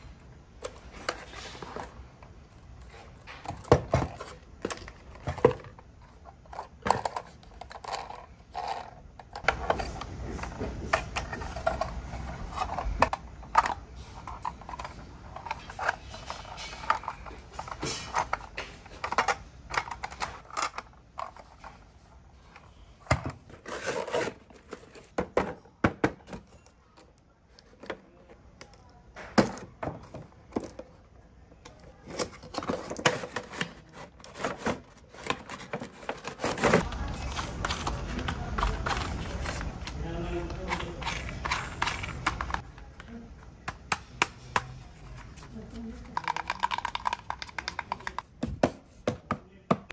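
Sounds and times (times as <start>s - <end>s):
plastic toy parts clicking: 46.1s - 48.2s.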